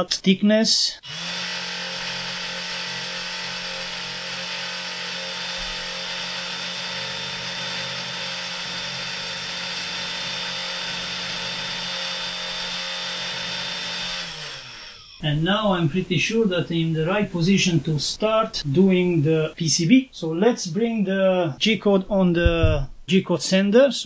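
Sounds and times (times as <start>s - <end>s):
spindle motor humming and whining: 1.0s - 18.0s.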